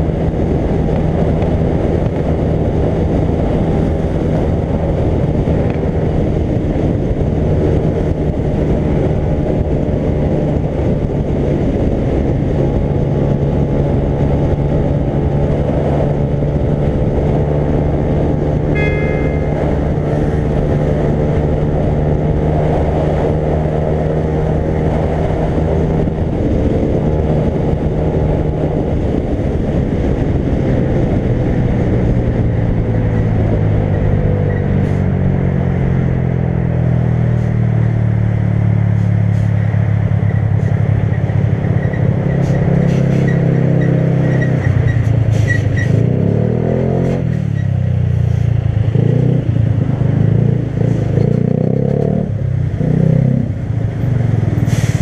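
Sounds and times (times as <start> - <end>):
motorcycle engine running: 0.0 - 34.4
wind rushing over microphone: 0.0 - 55.0
short high tone: 18.7 - 20.5.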